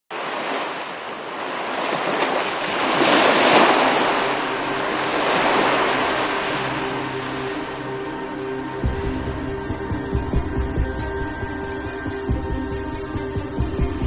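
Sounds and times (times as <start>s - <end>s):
ocean surf breaking: 0.1s - 9.4s.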